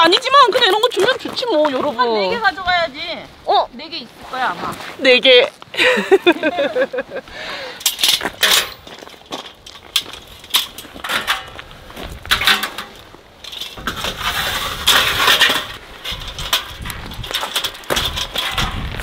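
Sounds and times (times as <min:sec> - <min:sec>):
footsteps on gravel: 0:00.0 - 0:03.1, 0:08.2 - 0:19.0
metal and wood parts clinking: 0:07.8 - 0:19.0
metal tray scraping: 0:12.3 - 0:19.0.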